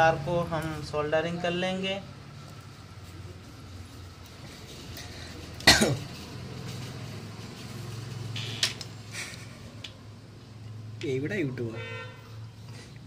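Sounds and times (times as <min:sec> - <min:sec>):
person coughing: 0:05.6 - 0:06.1.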